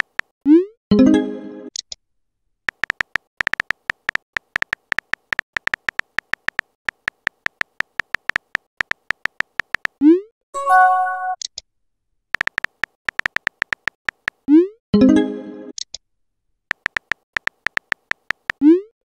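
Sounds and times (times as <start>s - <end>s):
keyboard tap clicks: 2.7s - 10.0s, 12.4s - 14.4s, 16.7s - 18.6s
brief chime: 10.6s - 11.4s.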